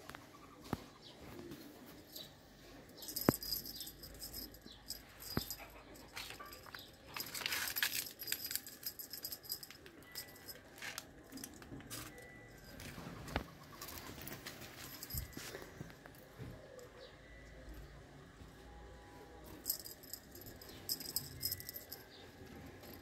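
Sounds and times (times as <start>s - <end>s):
cats playing with feather toy: 2.9s - 15.8s, 19.6s - 22.1s.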